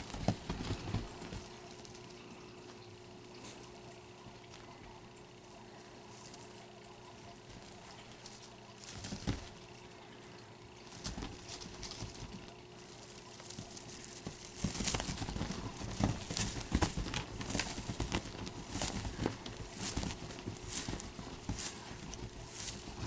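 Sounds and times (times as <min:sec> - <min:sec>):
kitten paws thumping on cloth: 0:00.0 - 0:02.1, 0:07.2 - 0:09.8, 0:10.8 - 0:23.0.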